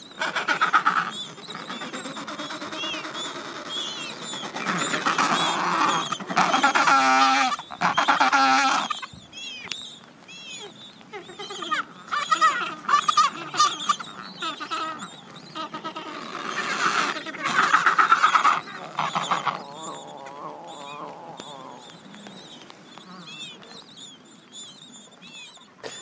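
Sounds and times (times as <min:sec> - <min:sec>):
penguins calling: 0:00.2 - 0:09.1, 0:11.1 - 0:22.0.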